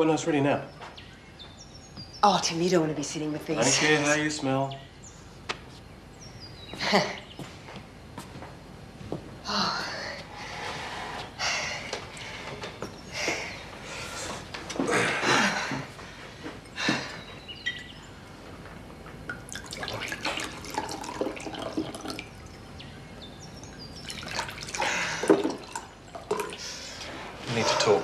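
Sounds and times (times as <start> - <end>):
water splashing and dripping: 19.3 - 22.7, 24.0 - 26.8.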